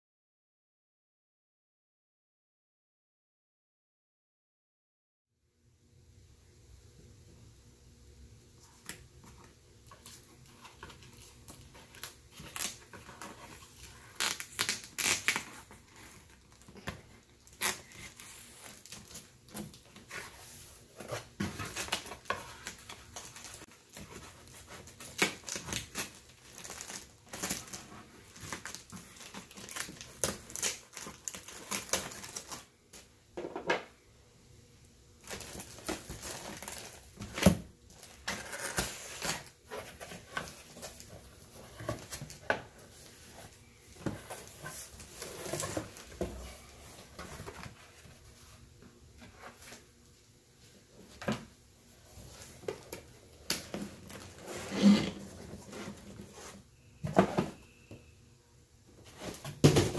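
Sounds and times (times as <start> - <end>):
cardboard box being unpacked: 9.4 - 32.7, 35.2 - 48.6.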